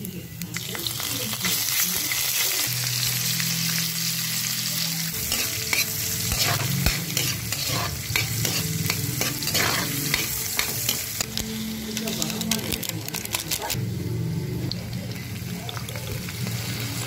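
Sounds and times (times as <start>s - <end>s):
food sizzling in a metal pan: 0.0s - 17.0s
spatula scraping a pan: 5.2s - 11.3s.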